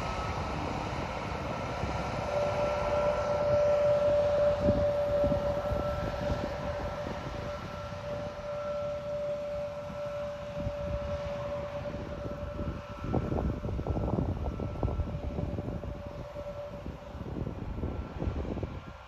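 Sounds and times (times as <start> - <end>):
distant jet engines running: 0.0 - 19.0.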